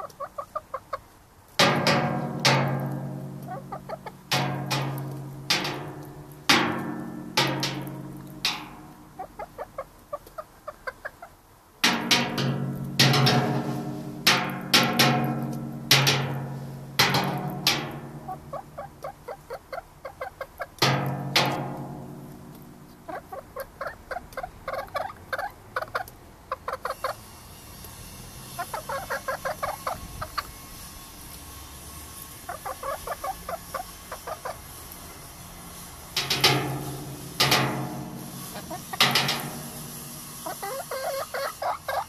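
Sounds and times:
hen clucking: 0:00.0 - 0:21.0, 0:22.9 - 0:27.2, 0:28.6 - 0:30.6, 0:32.5 - 0:34.6, 0:36.2 - 0:42.0
hen squawking: 0:03.4 - 0:04.2, 0:09.1 - 0:11.4, 0:28.6 - 0:30.5, 0:40.4 - 0:42.0.

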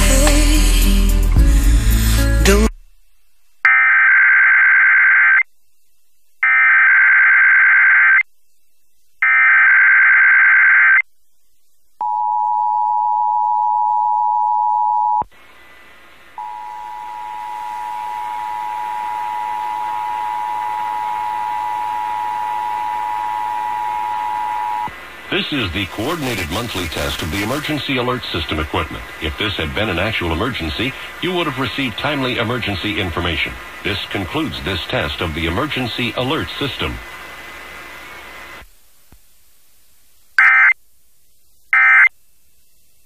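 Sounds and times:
radio hiss: 0:15.3 - 0:21.5, 0:22.1 - 0:39.2.

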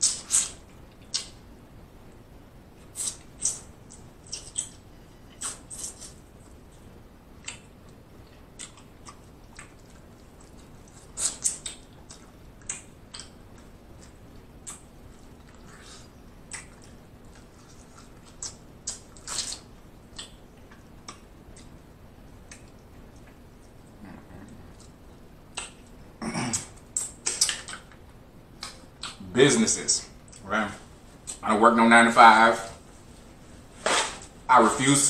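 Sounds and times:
wet chewing mouth sounds: 0:07.4 - 0:21.8, 0:28.6 - 0:29.2.

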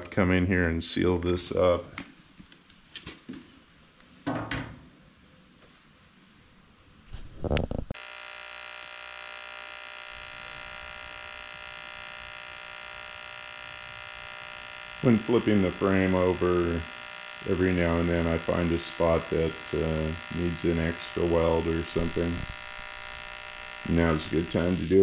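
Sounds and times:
welding arc buzzing: 0:07.4 - 0:25.0.

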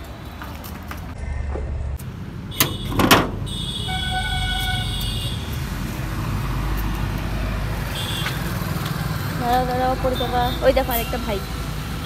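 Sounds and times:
steady low rumble: 0:01.0 - 0:02.6
vehicle horn: 0:02.5 - 0:05.5.

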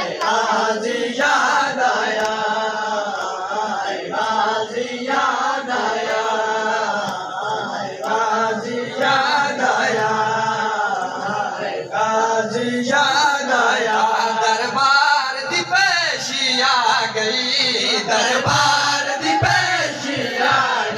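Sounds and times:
men chanting a lament: 0:00.0 - 0:20.9.

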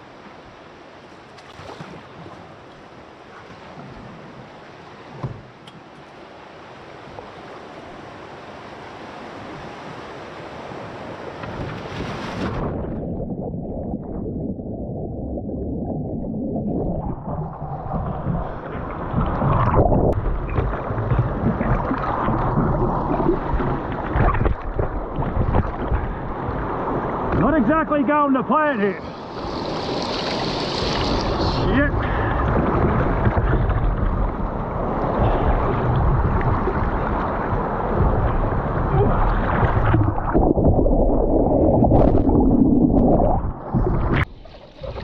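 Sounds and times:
wind on microphone: 0:11.4 - 0:27.4, 0:29.3 - 0:45.0
whitewater rushing: 0:26.8 - 0:33.3.

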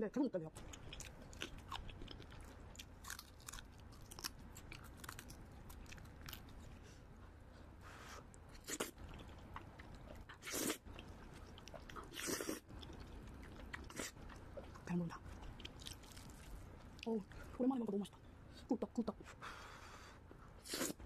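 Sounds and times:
crunching and chewing: 0:00.6 - 0:06.8, 0:08.5 - 0:17.1.

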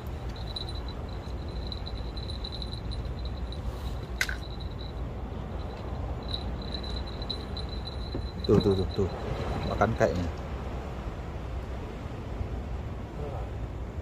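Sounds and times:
low background rumble: 0:00.0 - 0:14.0
faint pulsing high chirp: 0:00.2 - 0:09.8.

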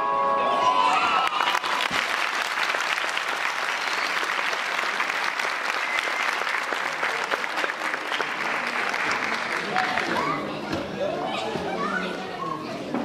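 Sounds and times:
music: 0:00.0 - 0:01.2
audience applauding: 0:00.9 - 0:10.4.

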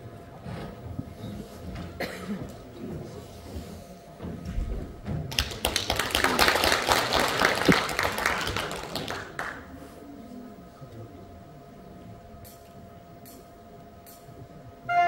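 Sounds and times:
audience applauding: 0:05.3 - 0:09.7.

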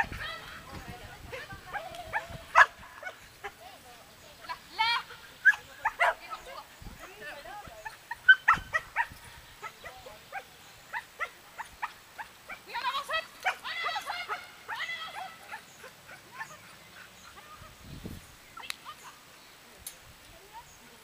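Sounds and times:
dog barking and yipping: 0:01.3 - 0:03.6, 0:05.4 - 0:06.6, 0:07.6 - 0:17.7.

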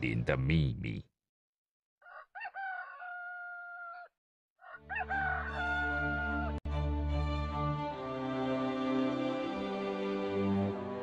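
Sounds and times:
rooster crowing: 0:02.0 - 0:06.6
soft music: 0:05.4 - 0:11.0.

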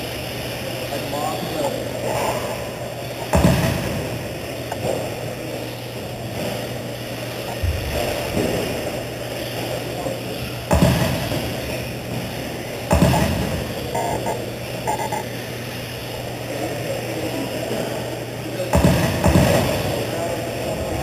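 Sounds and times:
indistinct voices in echoing hall: 0:00.4 - 0:21.0
sudden low thumps: 0:12.9 - 0:14.4.

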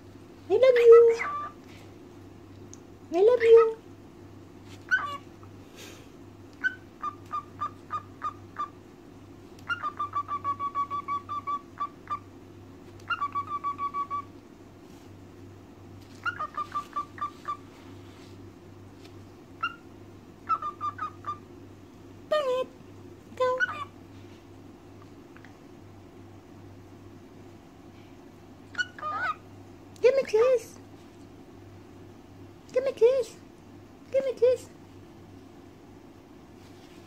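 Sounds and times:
cockatiel chirping: 0:01.2 - 0:01.6, 0:04.8 - 0:05.3, 0:06.6 - 0:08.8, 0:09.6 - 0:12.2, 0:13.0 - 0:14.3, 0:16.2 - 0:17.7, 0:19.6 - 0:21.4, 0:23.6 - 0:23.9, 0:28.7 - 0:29.4.

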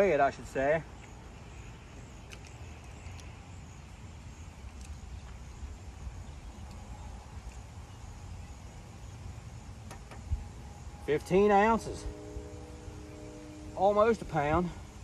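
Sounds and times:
faint low rumble: 0:02.6 - 0:15.0.

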